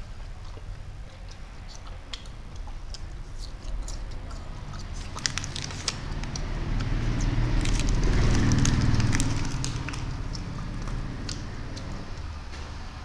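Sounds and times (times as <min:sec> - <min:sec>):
plastic wrapper crinkling: 0:04.8 - 0:06.4, 0:07.5 - 0:11.4.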